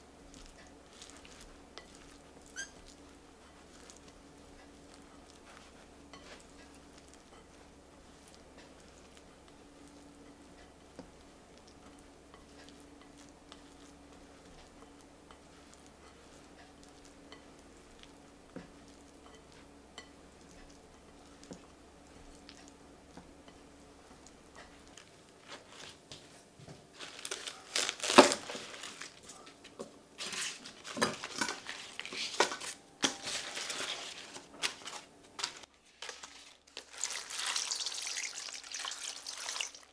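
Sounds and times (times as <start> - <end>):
lettuce leaves tearing and snapping: 27.0 - 29.2.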